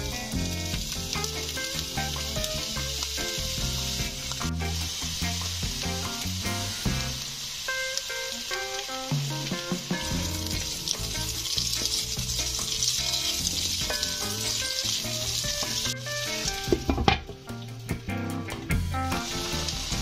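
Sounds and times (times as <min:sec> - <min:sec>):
peppers sizzling in hot oil: 0:00.0 - 0:20.0
wooden spatula knocking wok: 0:09.2 - 0:18.9.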